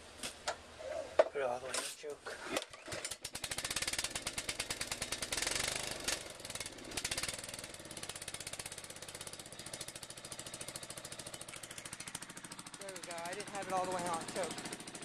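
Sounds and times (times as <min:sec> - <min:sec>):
mower engine running: 0:02.3 - 0:15.0.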